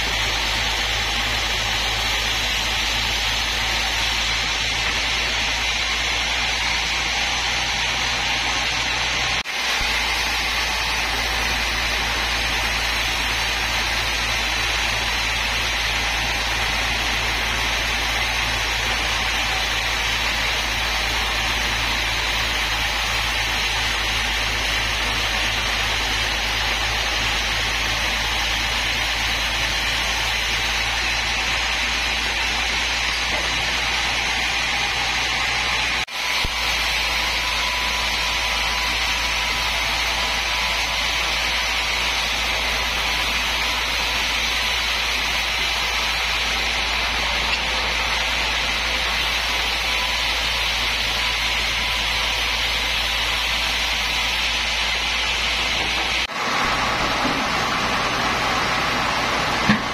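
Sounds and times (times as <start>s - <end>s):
band saw cutting log: 0.0s - 59.9s.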